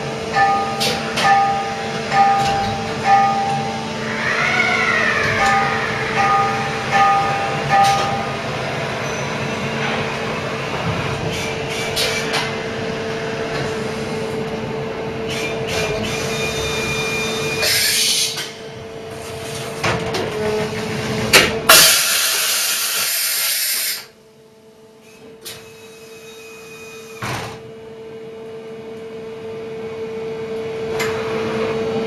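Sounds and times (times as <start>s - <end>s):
machining centre humming: 0.0s - 32.0s
air hiss: 21.7s - 24.1s.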